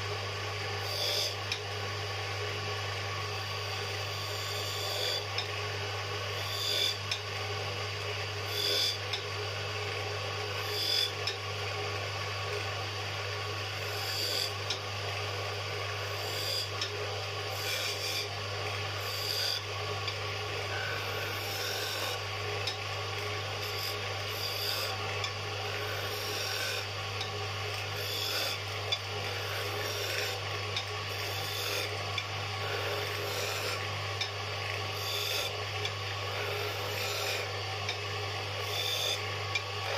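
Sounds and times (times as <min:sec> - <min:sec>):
wood lathe humming: 0:13.3 - 0:39.9
chisel scraping spinning wood: 0:27.9 - 0:32.0.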